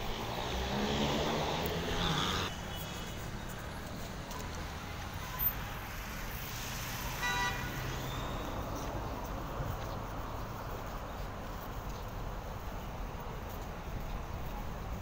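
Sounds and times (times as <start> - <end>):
vehicle passing by: 0.0 - 2.5
background traffic: 0.0 - 15.0.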